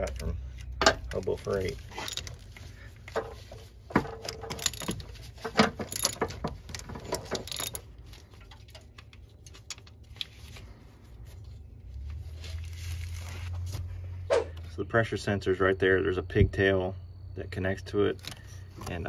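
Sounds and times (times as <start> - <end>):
ratchet metal clicks: 5.7 - 7.8.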